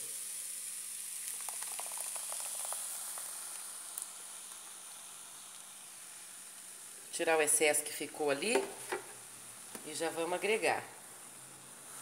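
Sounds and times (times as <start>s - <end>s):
cream pouring: 0.0s - 6.9s
chicken sizzling in pot: 0.0s - 12.0s.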